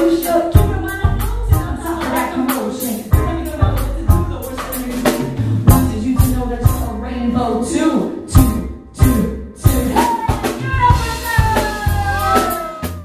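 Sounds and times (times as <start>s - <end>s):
vocal line: 0.0s - 6.8s
drum kit beat: 0.0s - 7.0s, 8.3s - 13.0s
bass and electric guitar: 0.0s - 13.0s.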